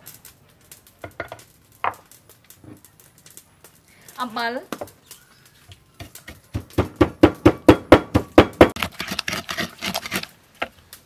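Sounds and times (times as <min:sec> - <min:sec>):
pestle pounding paste in mortar: 0:06.0 - 0:10.3.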